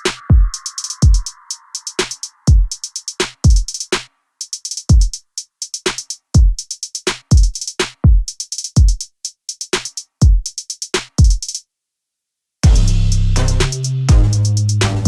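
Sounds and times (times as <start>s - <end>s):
hi-hat hits: 0.0s - 11.6s, 12.6s - 15.0s
deep kick drums: 12.6s - 13.1s, 14.1s - 15.0s.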